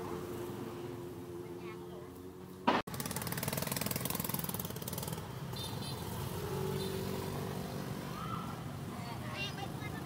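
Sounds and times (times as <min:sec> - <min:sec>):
traffic hum: 0:00.0 - 0:10.0
motorbike engine puttering: 0:02.7 - 0:05.2.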